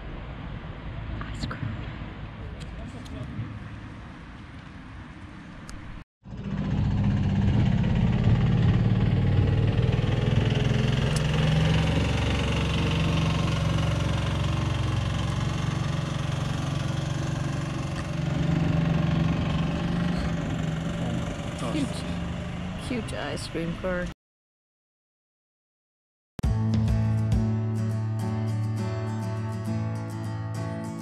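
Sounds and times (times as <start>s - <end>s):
vehicle engine running low revs: 0.0s - 24.1s.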